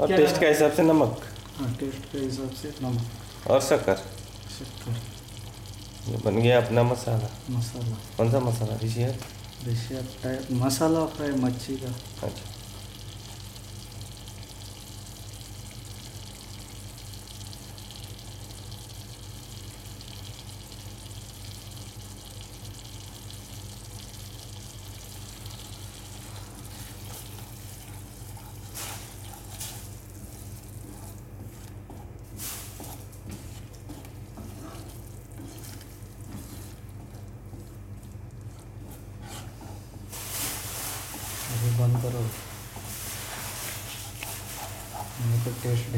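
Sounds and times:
masala sizzling in a frying pan: 0.0s - 45.9s
wooden spatula scraping: 26.2s - 45.9s.

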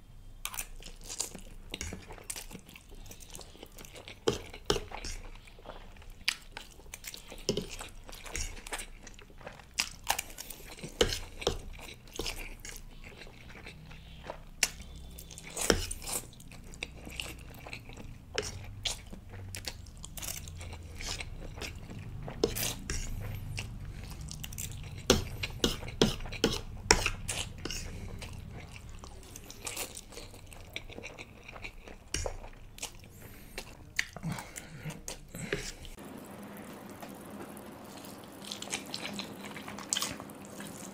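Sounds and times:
wet chewing and slurping: 0.5s - 40.9s.

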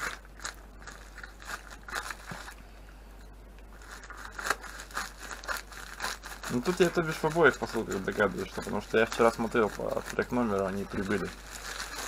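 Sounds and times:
scissors snipping plastic bag: 3.9s - 12.0s.

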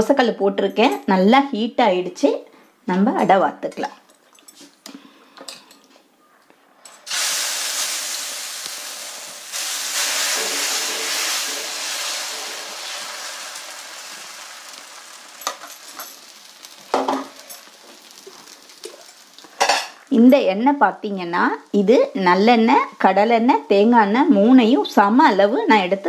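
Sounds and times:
batter sizzling on griddle: 7.1s - 20.1s.

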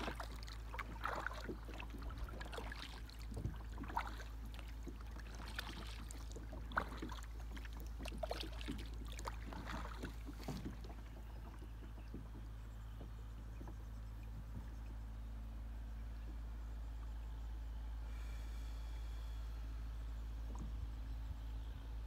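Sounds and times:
paddle splashing in water: 0.0s - 12.3s.

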